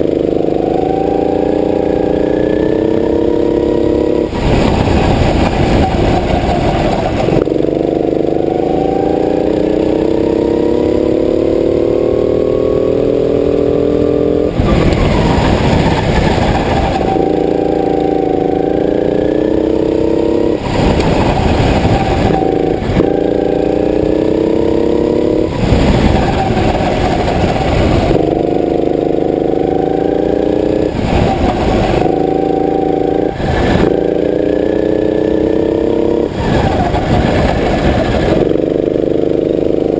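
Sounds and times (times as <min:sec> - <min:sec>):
go-kart engine accelerating: 0:00.0 - 0:39.9.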